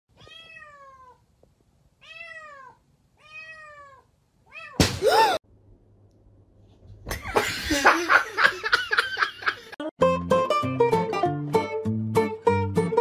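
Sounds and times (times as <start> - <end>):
cat meowing: 0.2 - 1.2, 2.0 - 4.8.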